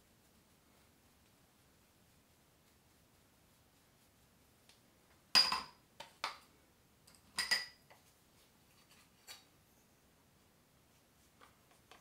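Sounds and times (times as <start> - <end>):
make-up containers clinking: 7.1 - 8.0.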